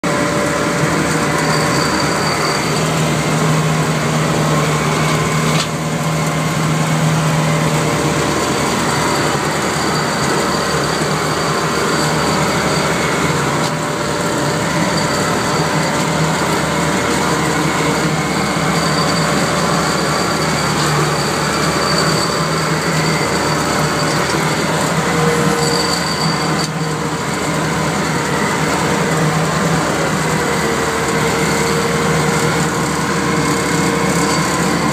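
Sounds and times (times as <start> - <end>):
mower engine and cutter drone: 0.0 - 34.9
thin high whine: 1.0 - 3.1.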